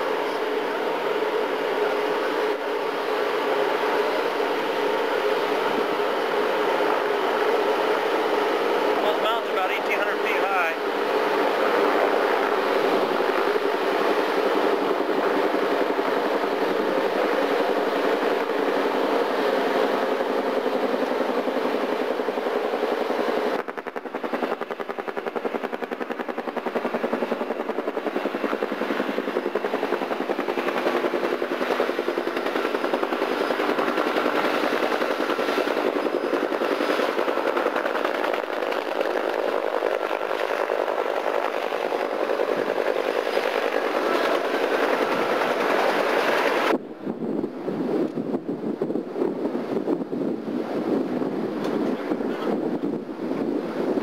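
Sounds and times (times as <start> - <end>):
helicopter rotor beating: 0.0 - 54.0
wind and engine noise: 0.0 - 54.0.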